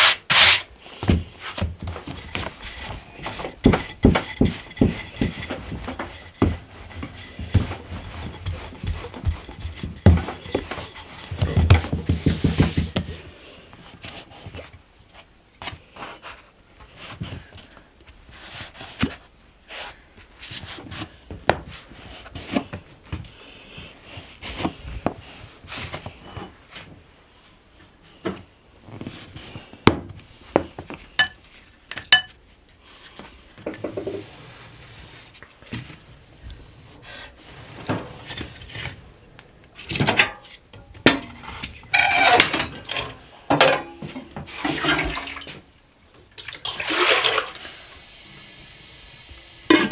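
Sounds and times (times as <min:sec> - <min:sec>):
dishes and pans being handled: 0:02.0 - 0:13.0, 0:31.2 - 0:32.4, 0:39.8 - 0:45.6
kitchen utensils clattering: 0:02.1 - 0:12.2, 0:39.8 - 0:45.5.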